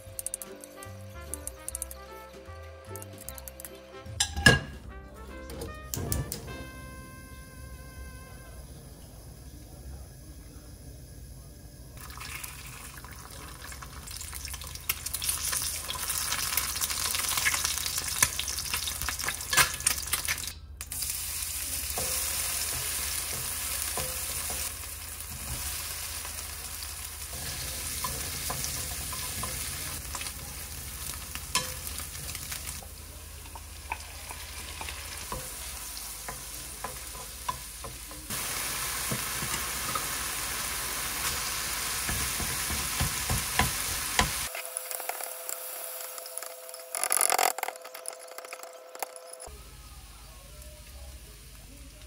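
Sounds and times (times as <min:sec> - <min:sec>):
food sizzling in a frying pan: 0:12.0 - 0:47.4.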